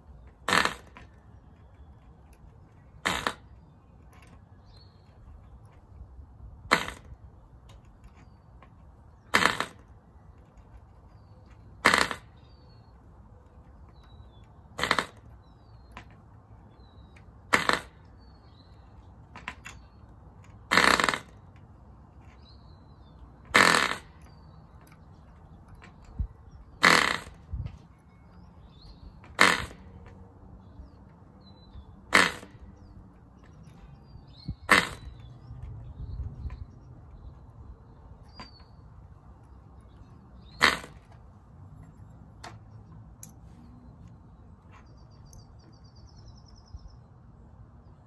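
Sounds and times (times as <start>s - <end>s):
small engine popping on flips: 0.2s - 1.2s, 3.0s - 4.8s, 6.7s - 12.6s, 13.8s - 16.3s, 17.2s - 18.6s, 19.3s - 21.7s, 23.4s - 27.8s, 29.2s - 30.2s, 32.1s - 32.7s, 34.3s - 36.8s, 40.0s - 41.3s.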